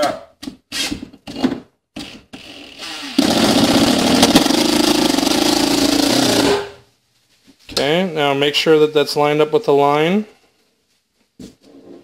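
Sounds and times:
cordless drill driving screw: 0:02.0 - 0:04.7.

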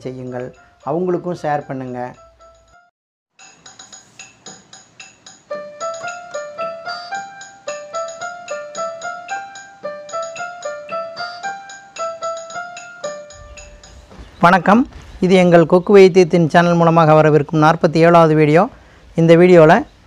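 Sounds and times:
keyboard melody intro music: 0:00.0 - 0:15.2.

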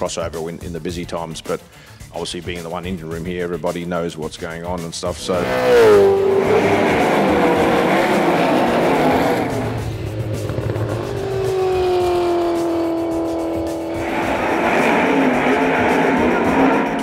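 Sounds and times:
race car engines at speed: 0:05.1 - 0:17.0.

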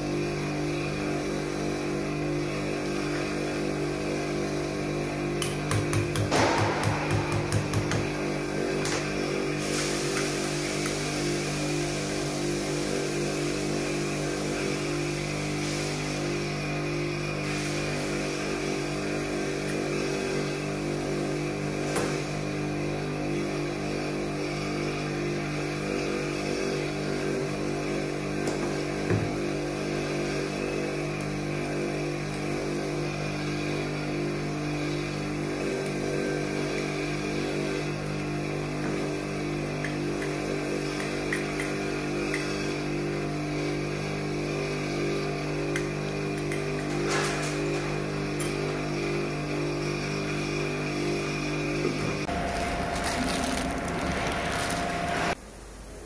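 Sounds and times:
motor droning hum: 0:28.0 - 0:55.5.

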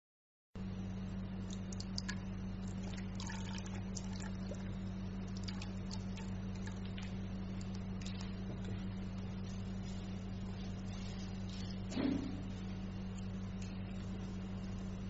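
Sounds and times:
steady low hum: 0:00.6 - 0:15.0
faint wet clicks and crackles: 0:01.4 - 0:11.8, 0:13.0 - 0:14.7.

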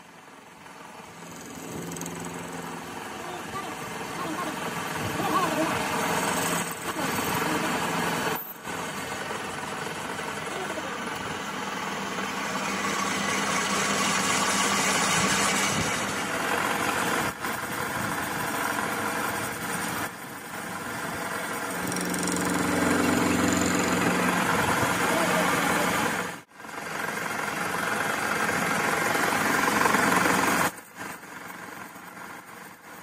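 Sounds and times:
metal lathe motor hum: 0:00.7 - 0:19.9, 0:20.5 - 0:26.4.

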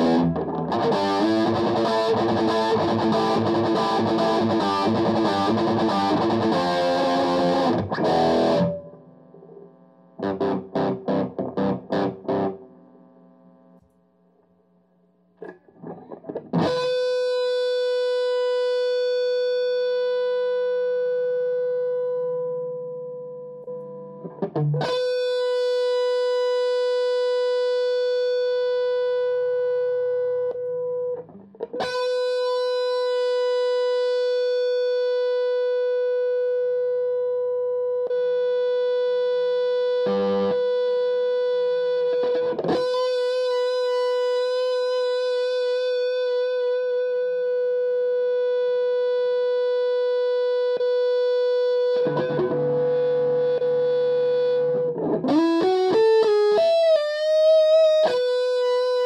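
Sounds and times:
distorted electric guitar riffing: 0:00.0 - 0:12.7, 0:15.4 - 0:22.5, 0:23.9 - 0:36.9, 0:38.1 - 0:59.0.

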